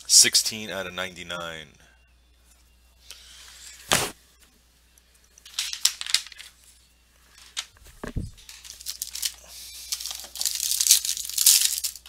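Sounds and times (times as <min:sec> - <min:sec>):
foil card packs crinkling: 0:08.2 - 0:12.0.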